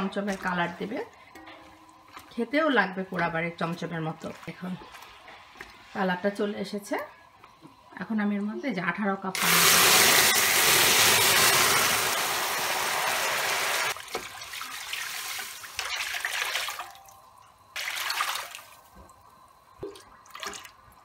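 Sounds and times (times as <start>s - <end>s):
water pouring into pan: 9.4s - 16.7s.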